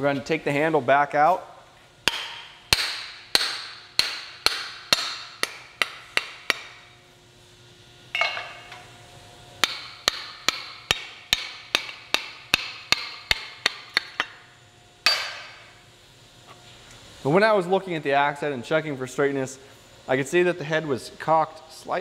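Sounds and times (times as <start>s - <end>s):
metal clank with ring: 8.1s - 8.8s, 15.0s - 15.6s.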